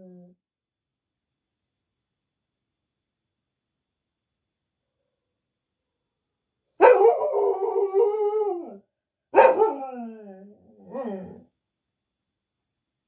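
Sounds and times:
dog howling: 6.8 - 8.8, 9.4 - 11.5.

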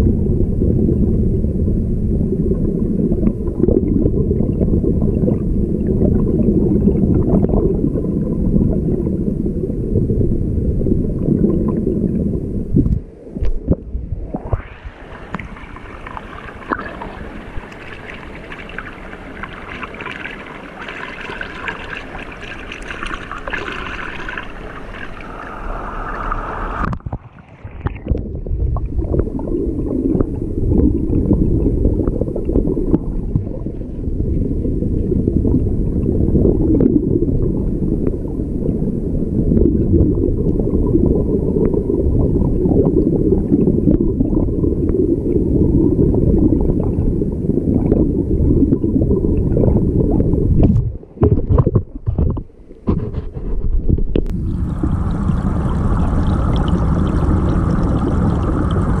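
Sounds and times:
underwater rush and gurgle: 0.0 - 59.0
stream water flowing: 14.3 - 28.2, 54.3 - 59.0
small ticks underwater: 15.2 - 25.4.

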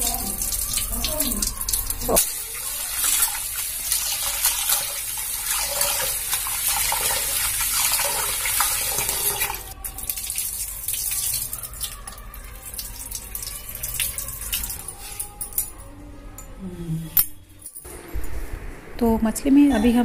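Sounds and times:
tap water pouring into metal bowl: 0.0 - 14.9.

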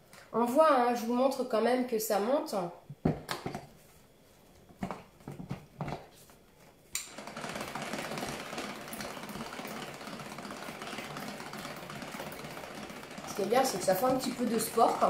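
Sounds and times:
hand-crank whisk whirring rattle: 7.0 - 15.0.

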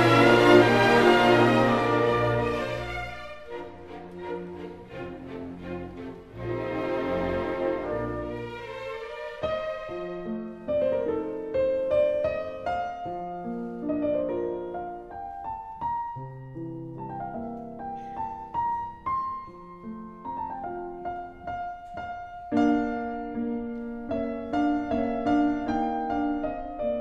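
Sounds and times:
slow piano music: 0.0 - 27.0.

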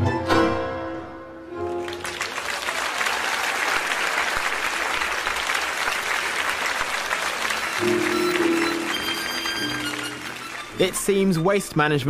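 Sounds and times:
audience applauding: 1.6 - 11.8
music held notes: 7.7 - 11.3.

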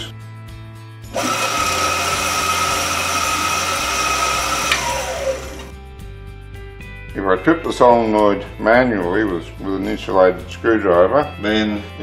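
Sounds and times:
bandsaw motor running with whine: 1.1 - 5.7
motor winding down: 1.1 - 5.7.

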